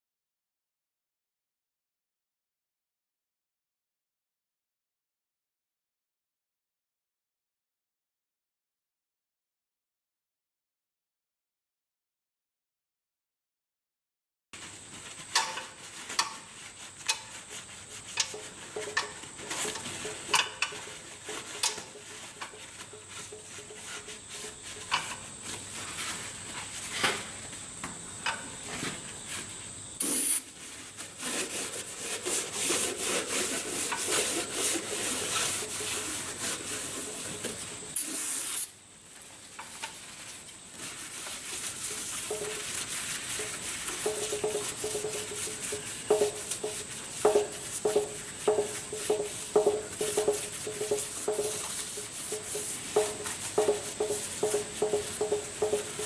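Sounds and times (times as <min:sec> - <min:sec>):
aerosol spray hiss: 0:30.0 - 0:30.7, 0:31.3 - 0:38.8, 0:40.2 - 0:56.0.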